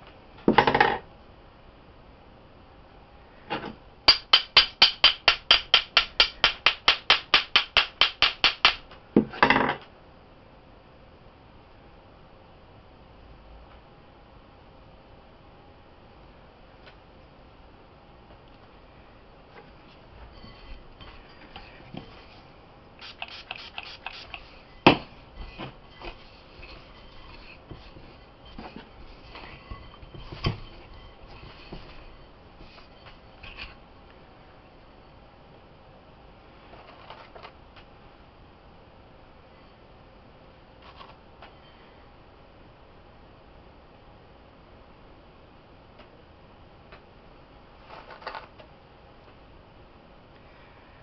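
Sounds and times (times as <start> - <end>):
hands tapping mixture in a bowl: 4.1 - 8.8.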